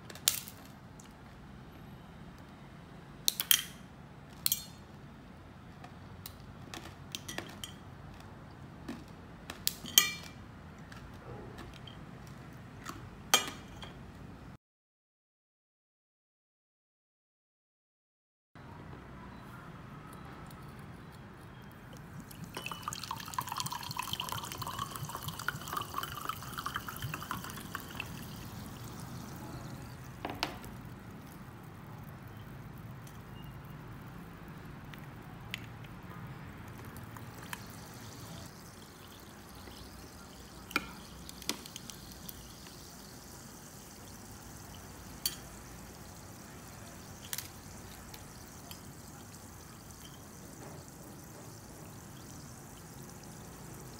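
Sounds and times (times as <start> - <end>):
faint fizz: 20.6 - 53.9
water pouring into a glass: 21.9 - 35.5, 36.4 - 53.9
objects plopping into a glass: 22.4 - 30.8, 36.8 - 43.3, 44.4 - 53.1.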